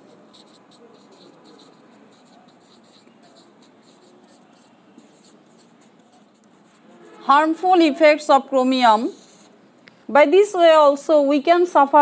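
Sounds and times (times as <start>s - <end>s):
marker pen writing on whiteboard: 0.0s - 9.6s.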